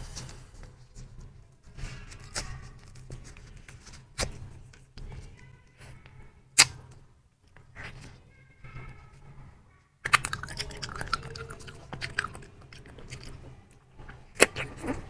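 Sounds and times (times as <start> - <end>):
sharp pops: 6.6 - 6.9.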